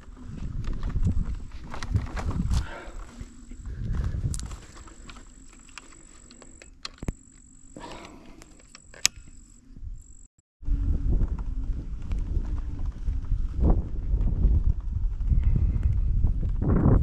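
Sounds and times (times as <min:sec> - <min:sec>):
low wind rumble: 0:00.0 - 0:05.4, 0:10.6 - 0:17.0
insect trilling: 0:02.6 - 0:10.3.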